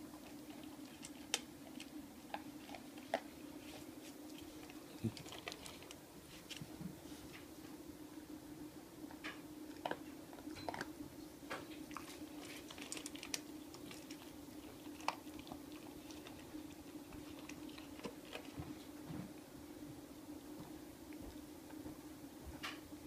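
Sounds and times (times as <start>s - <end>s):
dog crunching dry kibble: 0.0s - 6.8s, 11.6s - 19.0s.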